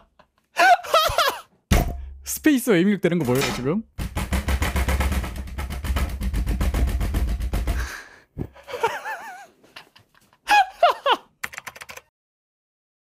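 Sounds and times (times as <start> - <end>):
man laughing: 0.0 - 1.5, 8.4 - 11.4.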